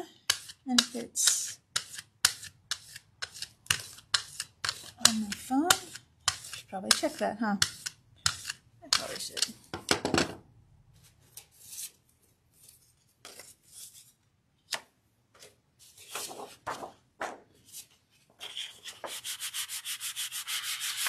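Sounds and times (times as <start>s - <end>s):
paper and plastic rustling: 15.4s - 17.5s.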